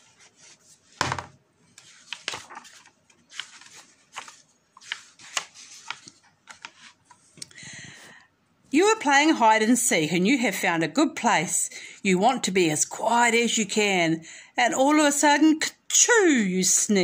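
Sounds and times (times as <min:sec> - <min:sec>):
page swishing: 0:00.0 - 0:01.0, 0:01.7 - 0:07.2
paper pages rustling: 0:00.0 - 0:07.4
book cover knocking on table: 0:01.0 - 0:01.4.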